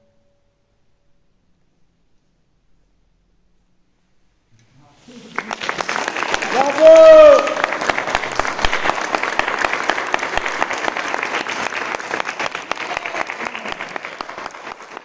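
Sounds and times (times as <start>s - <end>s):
audience applauding: 5.1s - 15.0s.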